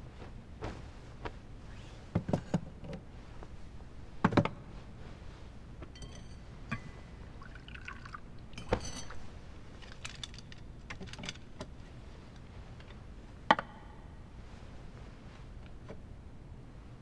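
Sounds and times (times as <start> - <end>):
tableware clinking and knocking: 6.0 - 7.2, 8.6 - 9.3.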